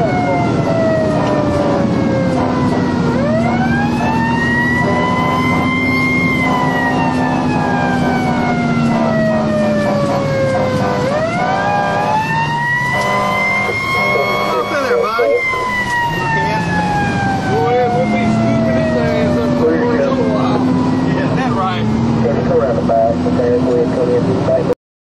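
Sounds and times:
engine and road noise: 0.0 - 24.8
fire engine siren wailing: 0.0 - 24.8.

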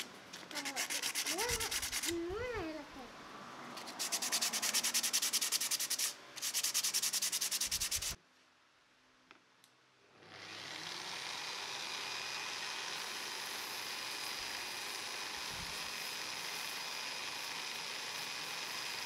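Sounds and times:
hand sanding wood: 0.0 - 2.2, 3.8 - 8.2
angle grinder running: 10.2 - 19.0.

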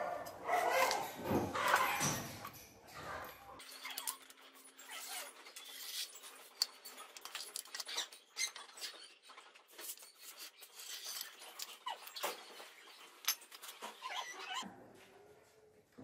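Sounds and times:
high squeaks: 3.6 - 6.4, 7.6 - 14.6.

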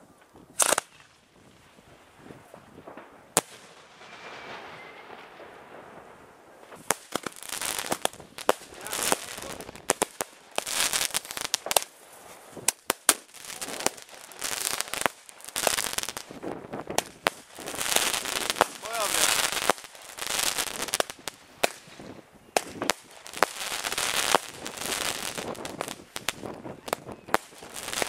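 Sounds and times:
fireworks crackling and popping: 0.0 - 28.0
firework hiss: 0.6 - 28.0
firework bang: 2.6 - 10.7.

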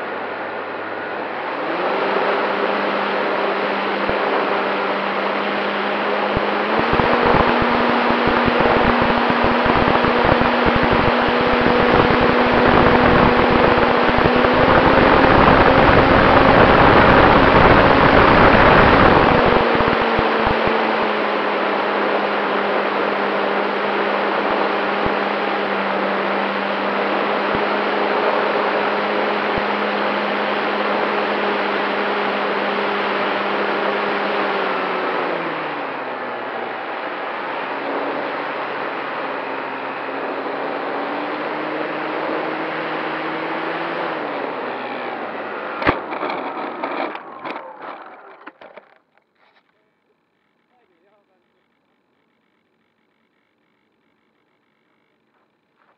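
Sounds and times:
model airplane motor drone: 0.0 - 49.0
wind buffeting microphone: 6.8 - 20.8.

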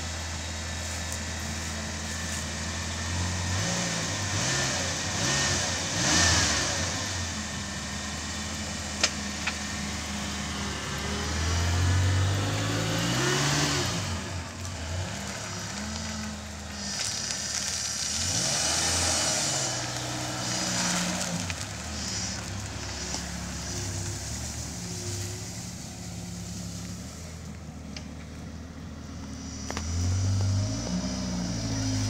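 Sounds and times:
car engine running: 0.0 - 32.0.

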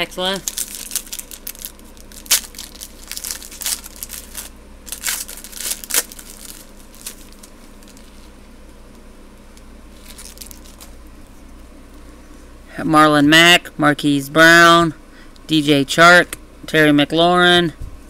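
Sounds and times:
foil wrapper tearing and crinkling: 0.2 - 8.4, 9.9 - 11.0.

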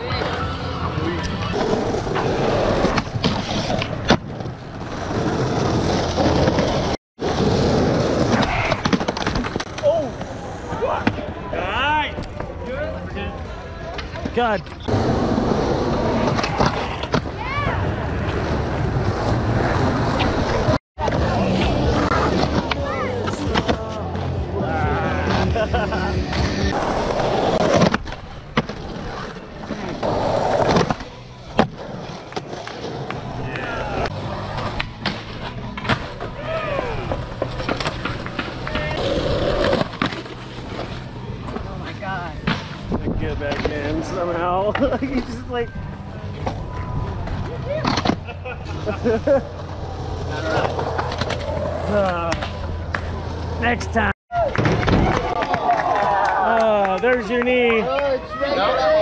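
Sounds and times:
skateboard wheels rolling on concrete: 0.0 - 59.0
skateboard clack: 26.2 - 41.7, 54.3 - 58.2.

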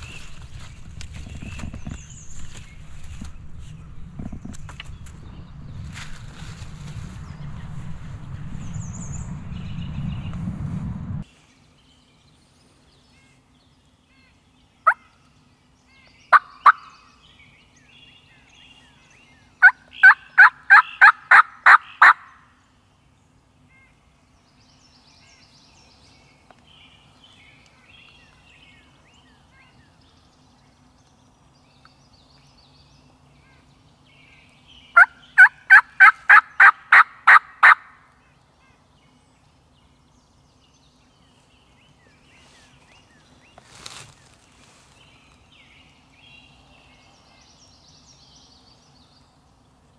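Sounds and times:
turkey call clucks and yelps: 16.3 - 16.9, 19.6 - 22.3, 35.0 - 37.9.

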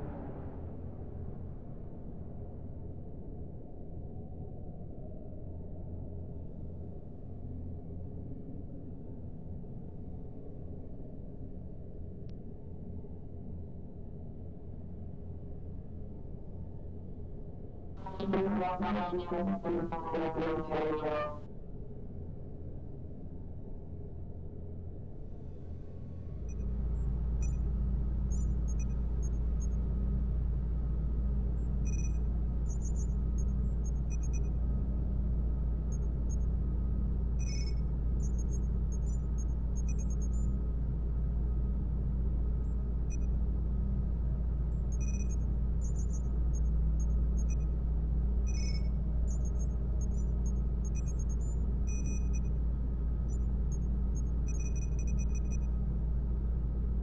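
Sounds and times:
deep rumble and hum: 18.0 - 21.4, 25.6 - 57.0
high electronic beeps and chirps: 18.0 - 21.4
low electronic drone: 18.0 - 21.4.

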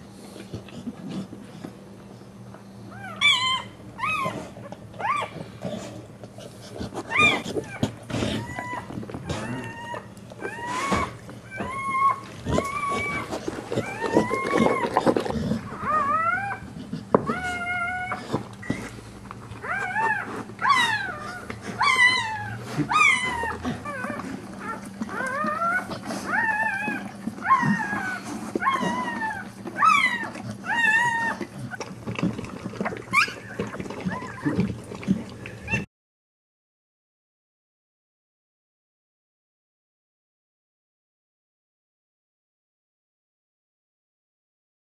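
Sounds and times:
puppy squeaking and whining: 2.9 - 5.5, 7.0 - 34.7, 35.6 - 35.9.

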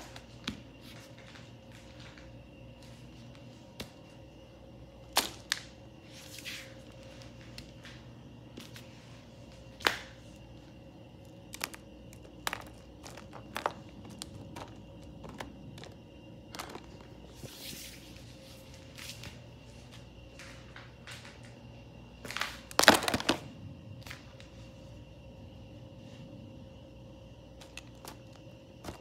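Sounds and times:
plastic toys knocking together: 22.7 - 23.5.

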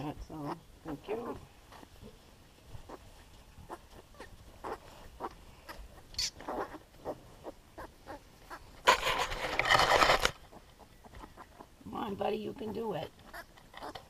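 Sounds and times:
pigs grunting and squeaking: 2.8 - 9.2, 10.5 - 11.8, 12.5 - 14.0
piglet squeal: 3.7 - 8.6.

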